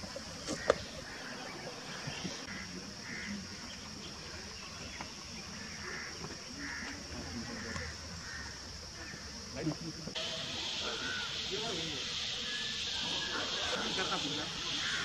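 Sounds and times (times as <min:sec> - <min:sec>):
high-pitched insect drone: 0:06.7 - 0:15.0.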